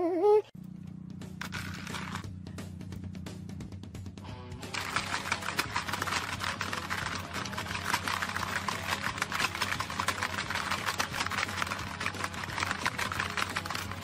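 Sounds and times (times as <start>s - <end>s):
pellets rattling on plastic board: 4.7s - 14.0s
plastic game levers clacking: 4.8s - 14.0s.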